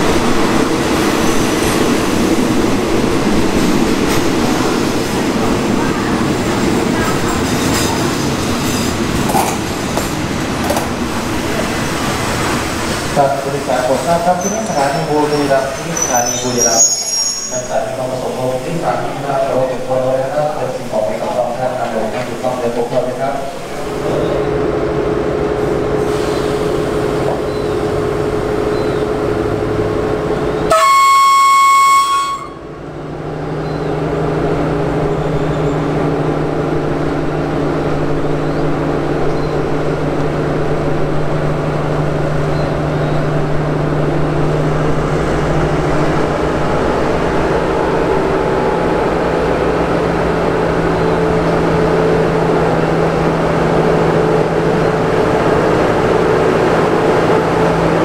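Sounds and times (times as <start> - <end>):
diesel locomotive engine running: 0.0 - 58.0
locomotive horn blast: 30.7 - 32.8.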